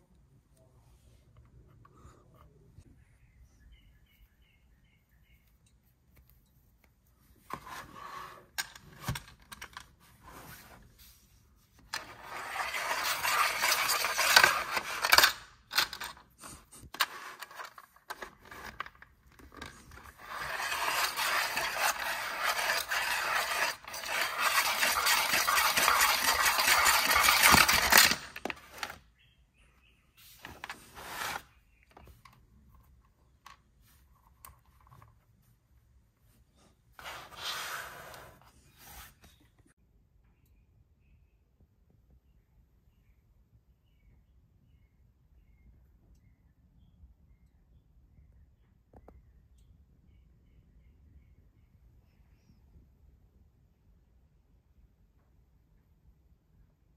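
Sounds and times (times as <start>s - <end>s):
plastic toy scraping and rattling: 7.5s - 10.9s, 11.8s - 29.0s, 30.4s - 32.2s, 37.0s - 39.4s.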